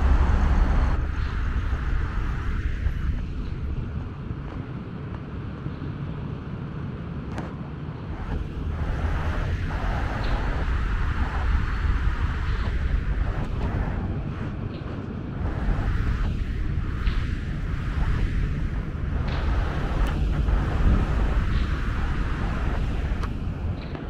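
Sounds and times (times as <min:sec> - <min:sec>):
highway traffic rumble: 0:00.0 - 0:24.0
wind buffeting microphone: 0:00.0 - 0:24.0.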